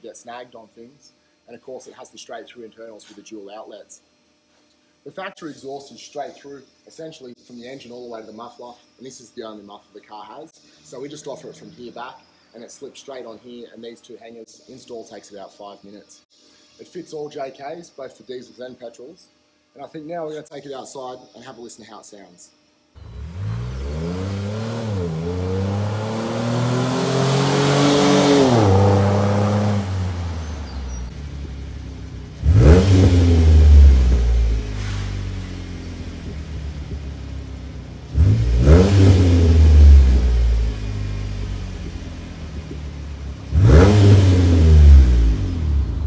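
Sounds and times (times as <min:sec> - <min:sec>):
car engine accelerating and revving: 0:23.0 - 0:46.0.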